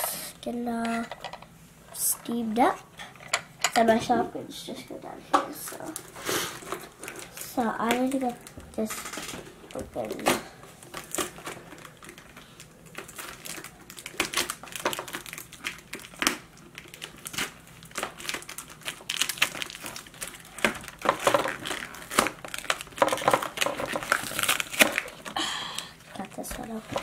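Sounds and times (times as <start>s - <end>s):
cardboard and paper crinkling: 5.7s - 25.4s, 26.1s - 27.0s.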